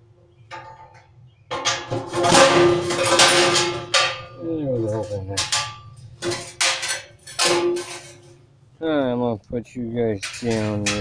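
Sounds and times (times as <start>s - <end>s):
metal drum ringing: 1.5s - 8.3s, 10.2s - 11.0s.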